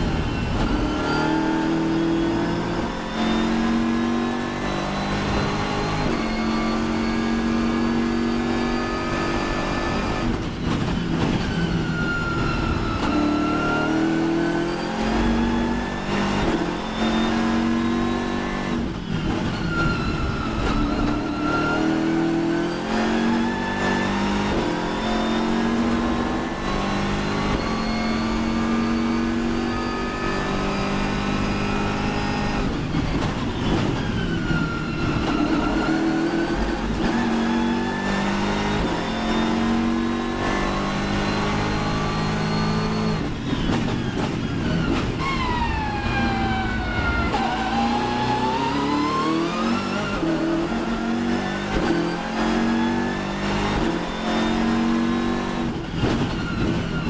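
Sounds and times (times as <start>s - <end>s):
race car engine at full throttle: 0.0s - 57.0s.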